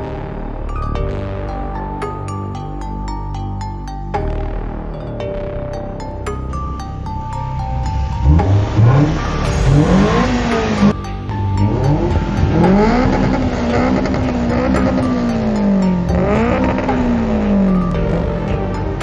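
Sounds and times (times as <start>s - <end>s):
music: 0.0s - 19.0s
car engine revving: 7.7s - 18.9s.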